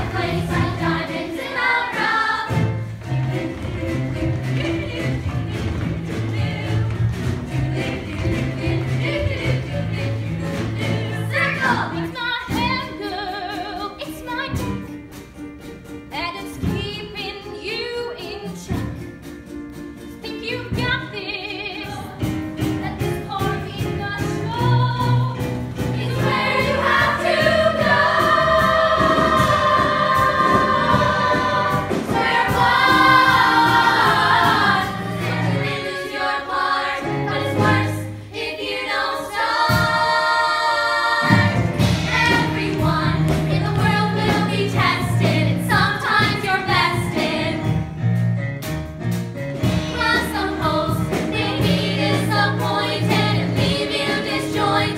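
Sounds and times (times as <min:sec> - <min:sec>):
instrumental accompaniment: 0:00.0 - 0:54.9.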